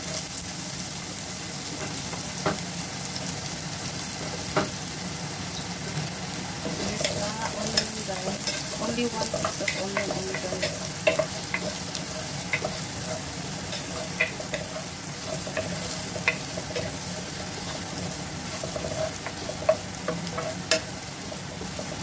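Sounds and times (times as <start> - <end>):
onion and garlic sizzling in oil: 0.0 - 22.0
spatula stirring and scraping: 6.6 - 22.0
spatula ticking against pan: 6.7 - 21.0.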